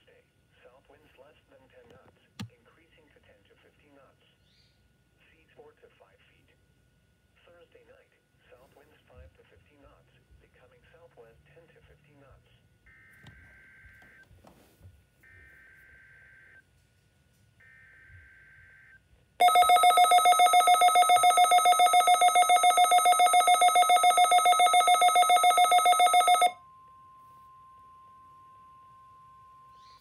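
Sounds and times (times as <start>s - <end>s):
faint digital header tones: 17.6s - 30.0s
rapidly pulsing alert beep: 19.4s - 26.6s.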